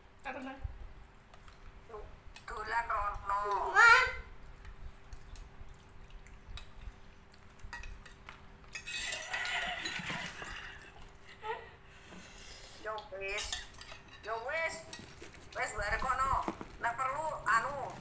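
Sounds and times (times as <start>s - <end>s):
metal spoons clinking against bowls: 7.5s - 11.0s, 13.3s - 15.2s.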